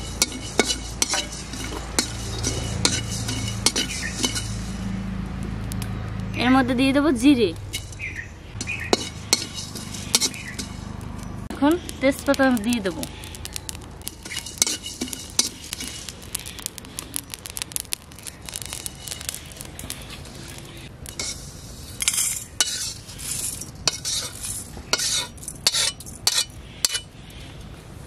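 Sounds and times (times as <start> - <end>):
metal spatula scraping iron pan: 0.0 - 4.9, 7.7 - 11.0, 13.0 - 16.7, 18.5 - 27.1.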